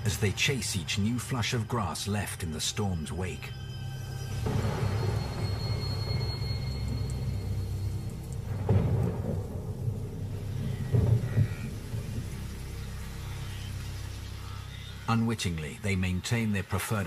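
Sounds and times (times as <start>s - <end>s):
thunder rumbling: 4.3s - 13.4s.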